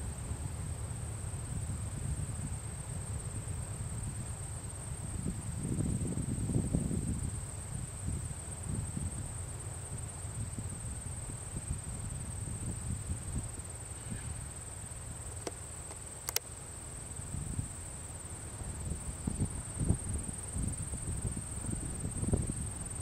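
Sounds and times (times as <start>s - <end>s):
wind rumble on microphone: 0.0s - 14.5s, 17.2s - 17.9s, 18.5s - 23.0s
insects trilling: 1.0s - 23.0s
sharp clicks: 15.4s - 16.5s.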